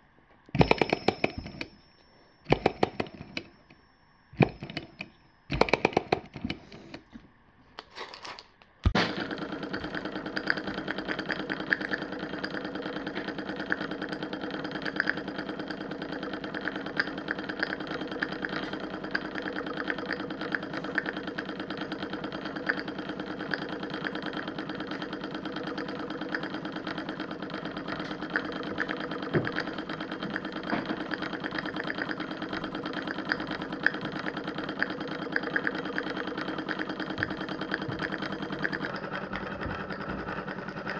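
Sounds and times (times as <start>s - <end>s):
small model engine clattering: 4.4s - 7.1s, 9.2s - 40.9s.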